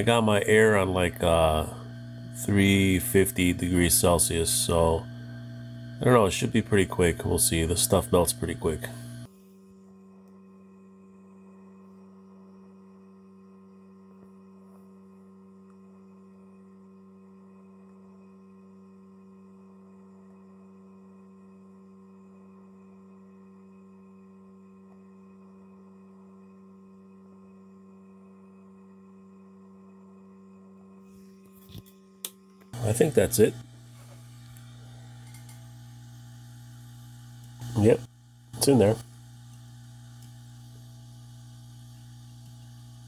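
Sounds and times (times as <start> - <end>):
hot air blower humming: 0.0 - 9.3, 32.7 - 43.0.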